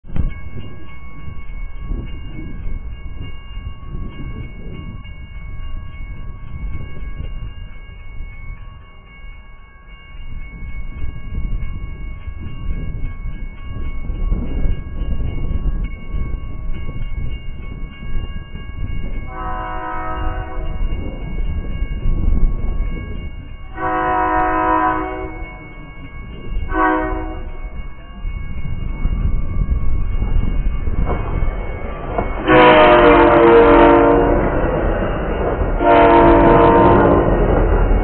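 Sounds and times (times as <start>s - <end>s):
low train rumble: 0.0s - 38.0s
train horn blasts: 19.3s - 20.8s, 23.7s - 25.6s, 26.7s - 27.6s, 32.4s - 34.5s, 35.8s - 37.5s.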